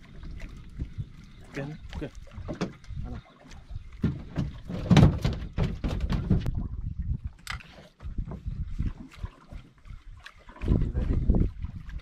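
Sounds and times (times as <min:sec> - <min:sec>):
knocks and thuds on boat deck: 0:02.4 - 0:03.2, 0:03.9 - 0:06.6.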